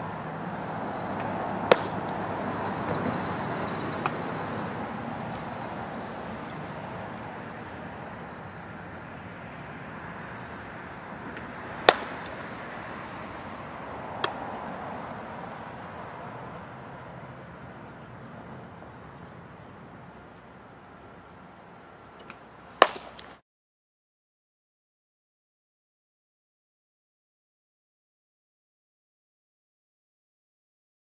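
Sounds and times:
steady background hum: 0.0 - 23.4
softball smacking into mitt: 1.7 - 2.2, 4.0 - 4.2, 11.3 - 12.4, 14.2 - 14.5, 22.8 - 23.3.

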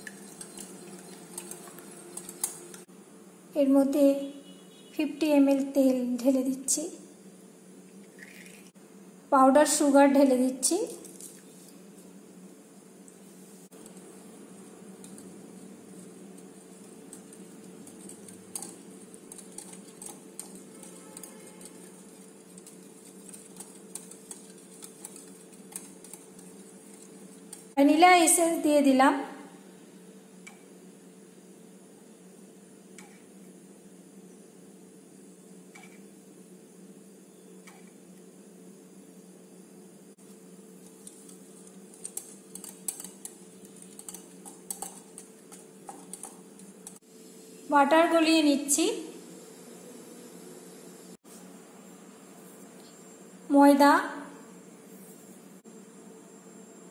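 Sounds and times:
whisk clicking against glass bowl: 15.9 - 27.7, 41.0 - 47.0.

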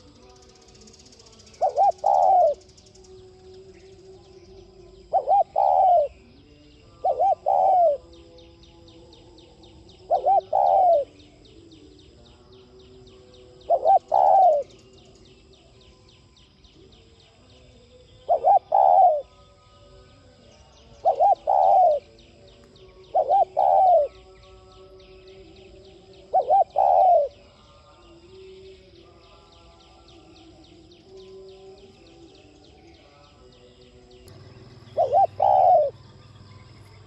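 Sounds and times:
dove cooing: 1.3 - 2.9, 4.7 - 6.3, 6.9 - 8.2, 10.0 - 11.4, 13.5 - 14.8, 18.2 - 19.3, 21.0 - 22.2, 23.0 - 24.4, 25.7 - 27.5, 34.3 - 37.0.

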